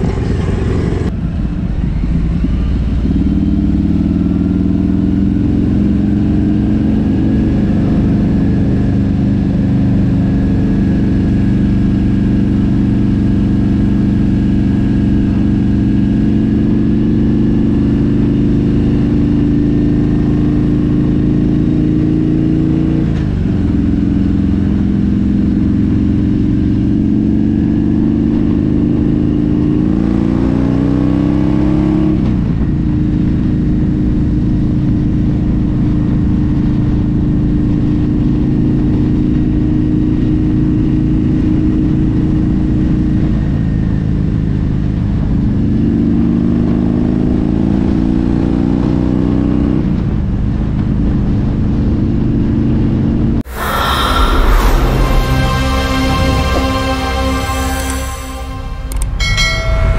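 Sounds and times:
motorcycle engine revving: 0.0s - 32.1s.

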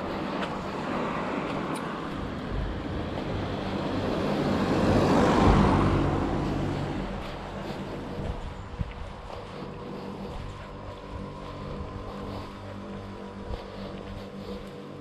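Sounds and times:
car driving past: 0.7s - 8.2s.

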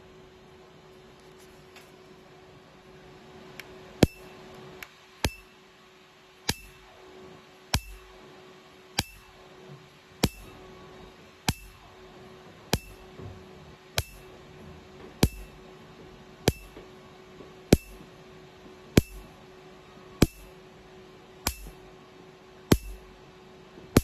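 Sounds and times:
steady low hum: 0.0s - 24.0s
laser pulse snaps: 3.6s - 5.6s, 6.4s - 6.9s, 10.2s - 10.6s.

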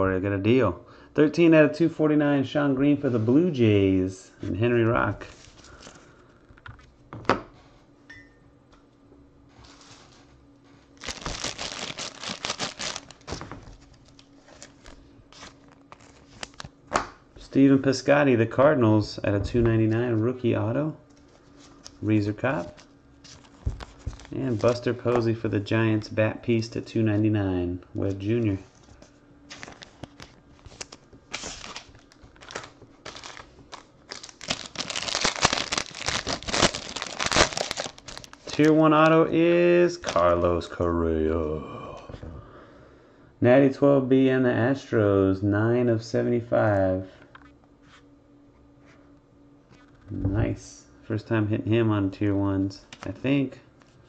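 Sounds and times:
foil wrapper crinkling and tearing: 11.0s - 16.8s, 22.6s - 24.9s, 29.5s - 39.2s, 39.9s - 40.4s.

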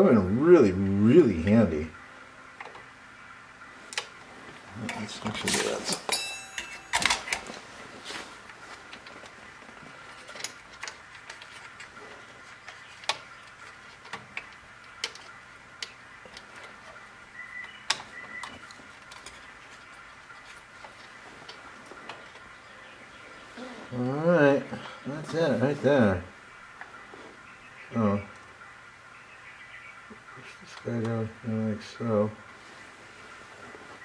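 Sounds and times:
faint steady hum: 0.0s - 34.0s
tools clicking and tapping: 5.5s - 7.5s, 12.6s - 17.0s.

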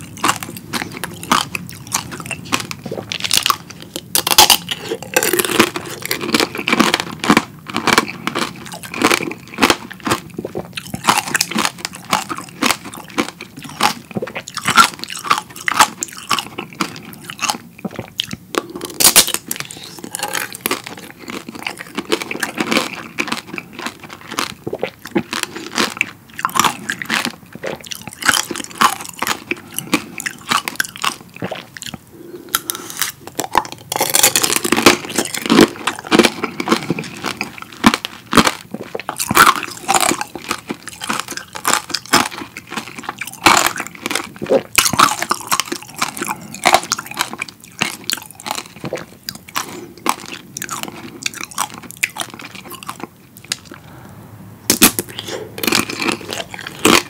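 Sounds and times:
crunching candy coating: 0.0s - 53.8s, 54.7s - 57.0s.

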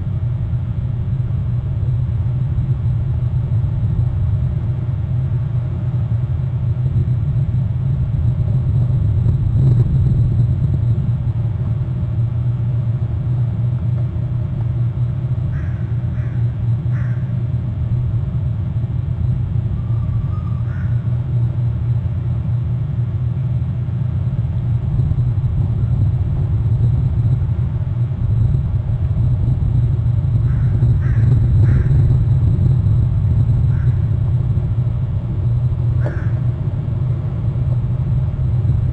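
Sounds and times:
wind buffeting microphone: 0.0s - 16.3s, 24.2s - 38.9s
short bird calls: 36.0s - 36.5s.

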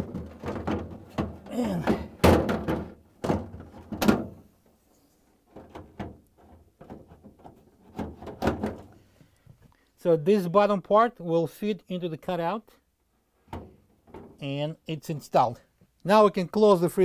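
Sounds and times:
plastic basket knocking and rattling: 0.0s - 4.4s, 5.5s - 8.9s.

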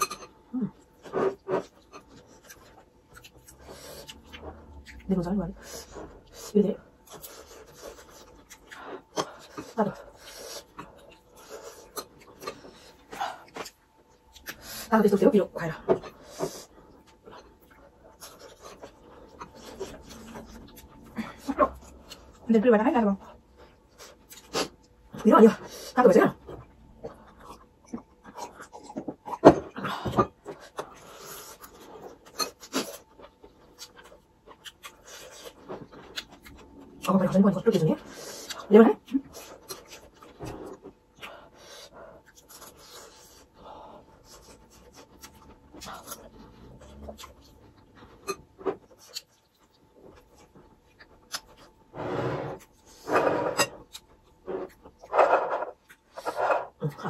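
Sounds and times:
chewing and mouth noises: 0.0s - 14.9s, 26.4s - 51.9s
slurping and chewing: 0.7s - 14.9s.

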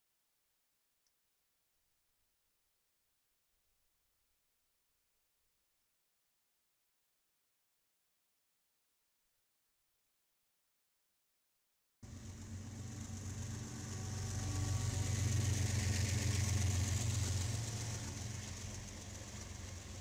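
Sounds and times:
diesel locomotive engine drone: 12.0s - 20.0s
wheels hissing on rail: 12.0s - 20.0s.

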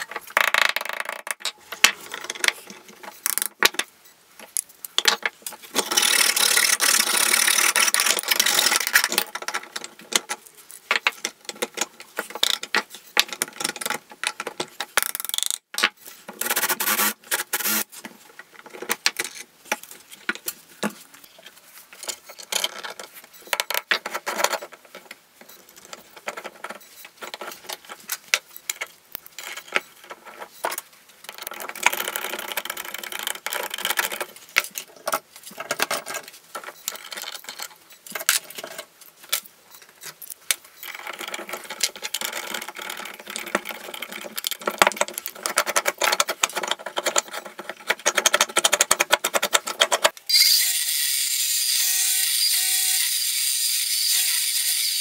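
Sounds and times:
metal parts clinking and knocking: 0.0s - 15.9s, 21.9s - 50.2s
cordless drill boring into metal: 50.3s - 55.0s.

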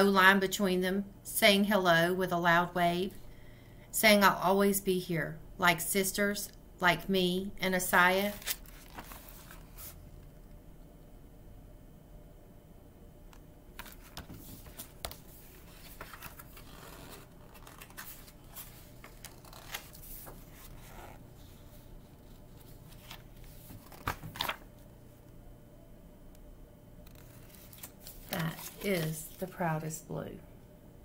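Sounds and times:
book pages turning: 8.2s - 10.0s, 13.8s - 24.7s, 27.0s - 29.5s.

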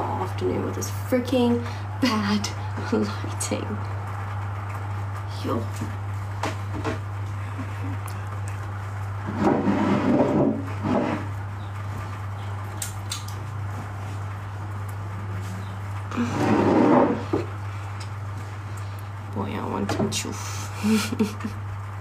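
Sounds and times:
steady low hum: 0.0s - 22.0s
bumps and rustling near microphone: 5.2s - 12.4s.

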